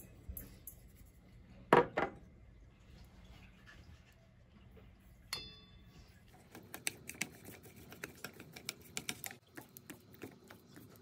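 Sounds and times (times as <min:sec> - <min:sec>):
chopsticks tapping a steel bowl: 0:05.3 - 0:05.7.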